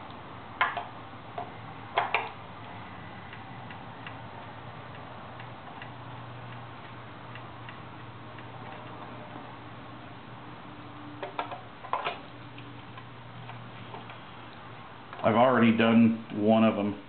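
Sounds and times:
knocks and clicks of handling: 0.6 - 2.4, 11.2 - 12.3.

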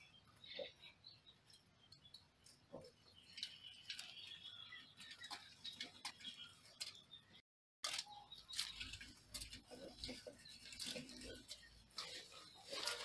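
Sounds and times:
mice scrabbling over wire and grain: 2.4 - 7.0, 7.8 - 13.0.

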